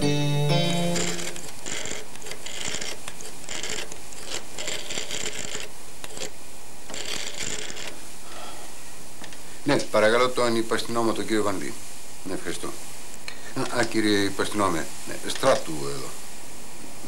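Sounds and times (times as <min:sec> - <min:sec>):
rotary phone dial whirring: 0:00.6 - 0:08.0.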